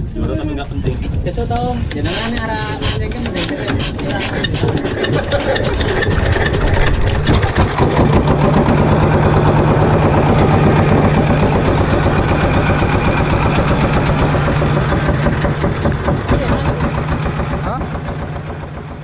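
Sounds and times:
boat engine hand-cranked and running: 0:00.9 - 0:19.0.

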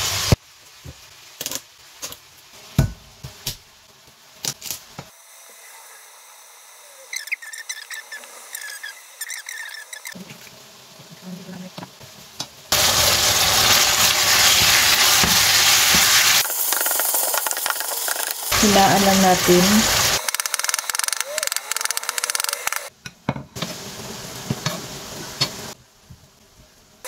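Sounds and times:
meat sizzling in a wok: 0:00.0 - 0:26.9
faint high chirps: 0:05.5 - 0:10.2.

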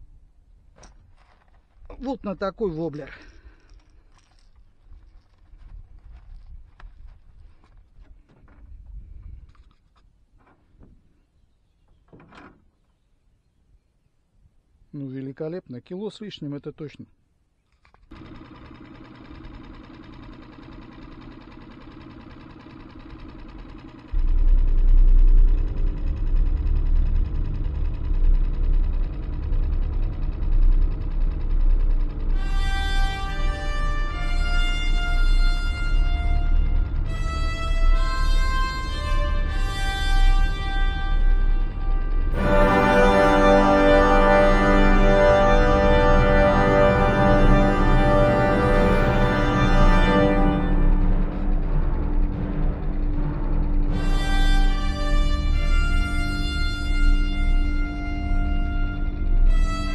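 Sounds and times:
outboard motor running: 0:18.1 - 0:59.9
loud low rumble: 0:24.1 - 0:59.9
music of long held chords: 0:24.2 - 0:59.9.

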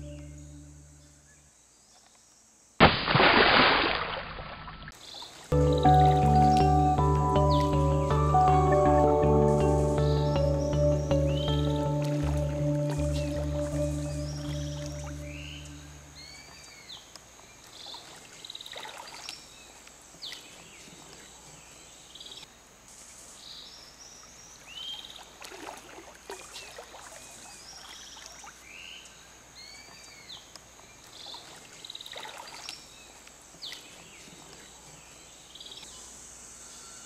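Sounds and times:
water splashing from swimming: 0:02.8 - 0:07.8, 0:11.7 - 0:15.2, 0:17.6 - 0:21.4, 0:25.0 - 0:28.7, 0:31.0 - 0:34.7
faint high hiss: 0:05.0 - 0:37.0
short high chirps: 0:05.6 - 0:16.3.

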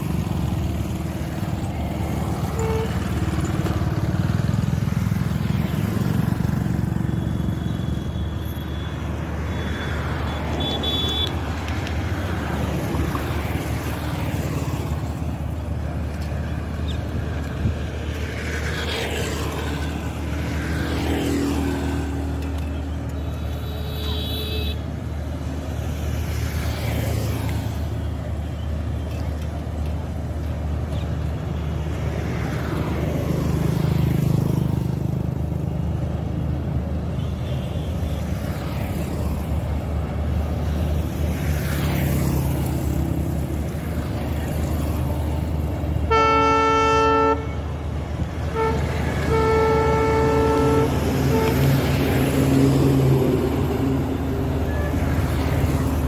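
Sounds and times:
diesel locomotive rumbling: 0:42.7 - 0:56.0
train horn blasts: 0:46.1 - 0:47.6, 0:48.5 - 0:51.8.

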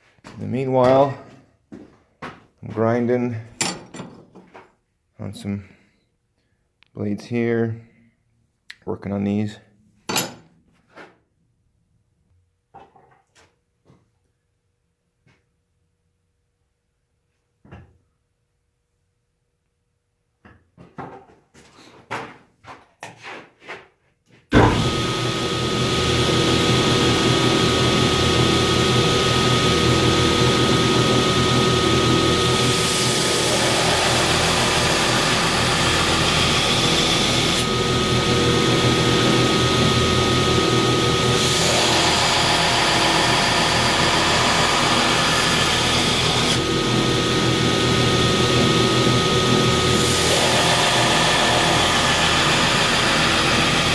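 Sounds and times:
belt grinder grinding steel blade: 0:24.6 - 0:53.9.

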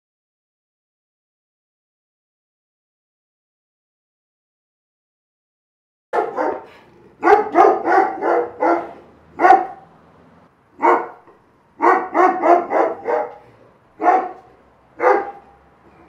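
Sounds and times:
dog barking alarm: 0:06.2 - 0:09.8, 0:10.8 - 0:11.2, 0:11.8 - 0:15.6.

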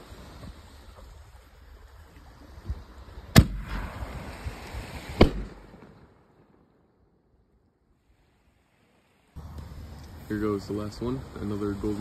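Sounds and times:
firework launch bang: 0:03.3 - 0:06.5.

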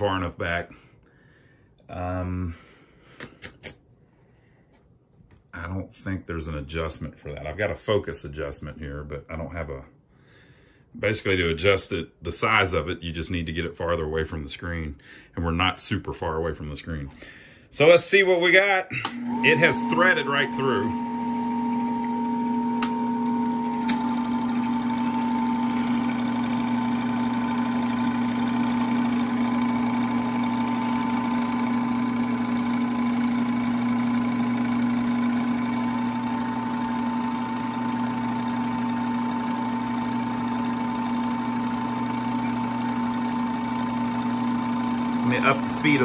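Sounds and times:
film projector running: 0:18.9 - 0:46.0.

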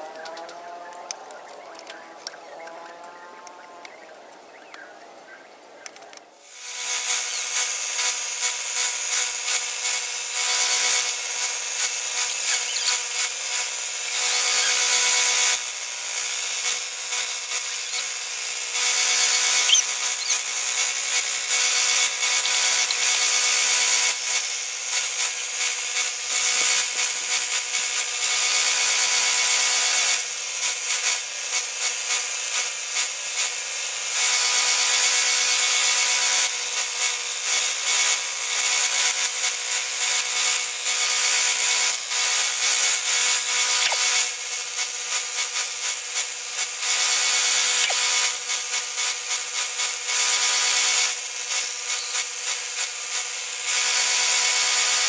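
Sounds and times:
belt sander motor hum: 0:06.4 - 0:30.2
sanding belt rasping on wood: 0:06.4 - 0:33.6, 0:34.2 - 0:55.0.

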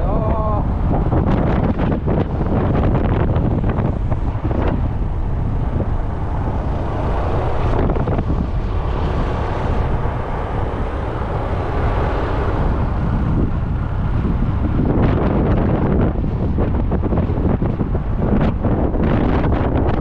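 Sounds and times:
scooter engine rumble: 0:00.0 - 0:20.0
wind rushing over microphone: 0:00.0 - 0:20.0.

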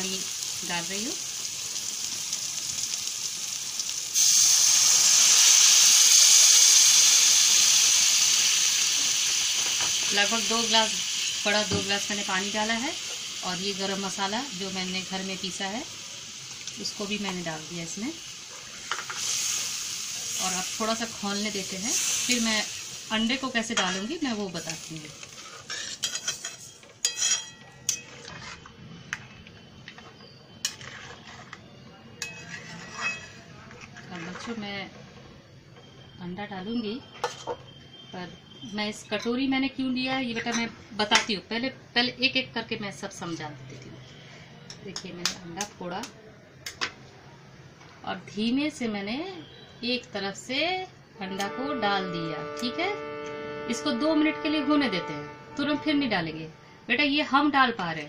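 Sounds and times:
water hissing in hot oil: 0:00.0 - 0:26.6
paste sizzling in oil: 0:00.0 - 0:27.3, 0:29.7 - 0:34.8
metal spatula clinking on steel pan: 0:25.9 - 0:28.2, 0:32.2 - 0:33.4.

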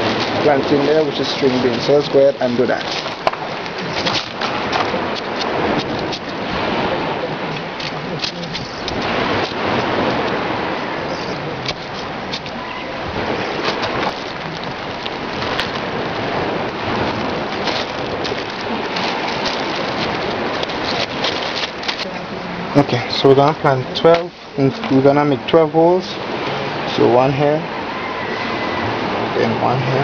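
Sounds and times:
hands scraping gritty soil: 0:00.0 - 0:06.4, 0:11.1 - 0:22.1.

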